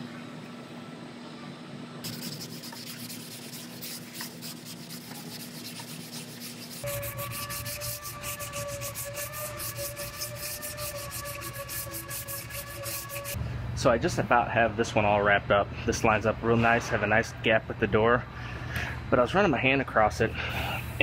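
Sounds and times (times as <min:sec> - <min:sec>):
steady background whine: 0:00.0 - 0:21.0
hand sanding block rubbing: 0:02.0 - 0:13.4.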